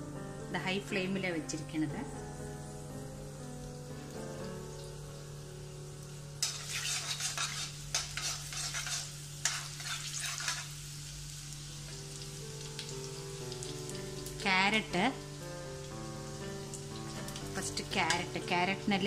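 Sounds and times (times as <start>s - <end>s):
garlic sizzling in hot oil: 0.5s - 19.0s
spatula scraping pan: 6.4s - 10.8s.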